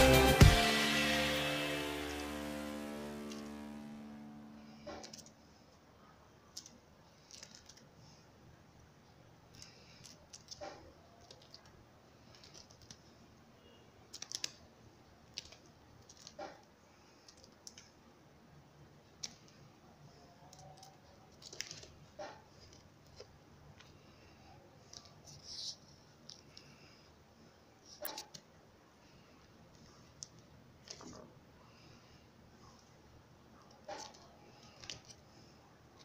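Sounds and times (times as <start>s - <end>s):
faint clicks and scratches: 4.8s - 8.3s, 9.4s - 18.1s, 19.0s - 27.0s, 27.8s - 36.0s.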